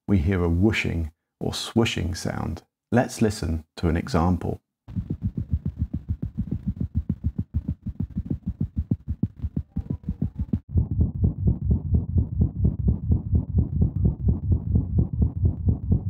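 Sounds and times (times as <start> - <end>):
cat heartbeat through stethoscope: 4.9 - 16.0
heart murmur whooshing: 4.9 - 16.0.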